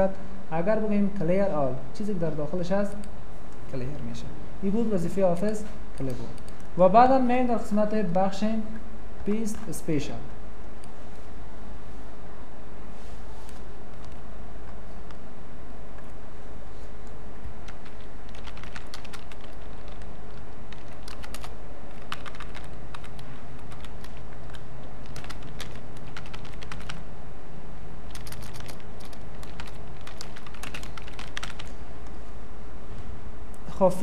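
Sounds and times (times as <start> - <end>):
keyboard typing: 5.2 - 6.8, 13.9 - 15.2, 17.0 - 27.0, 28.1 - 32.2.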